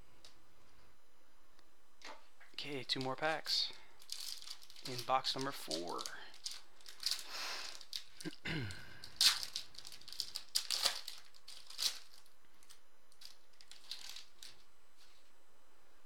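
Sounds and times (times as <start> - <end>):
foil wrapper crinkling and tearing: 2.9 - 15.3.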